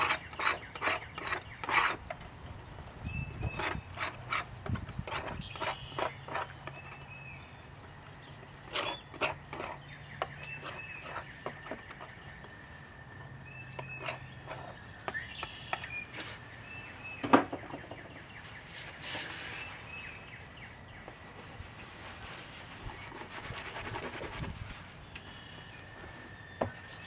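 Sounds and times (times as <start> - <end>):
palette knife scraping palette: 0.0 - 2.0, 3.5 - 6.8, 8.7 - 9.8, 10.5 - 12.1, 13.8 - 14.8
birds chirping: 0.0 - 23.8, 24.9 - 27.0.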